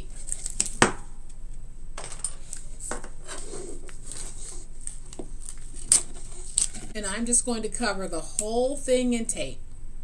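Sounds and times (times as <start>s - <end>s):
crackly rustling and clicks: 3.8s - 7.0s.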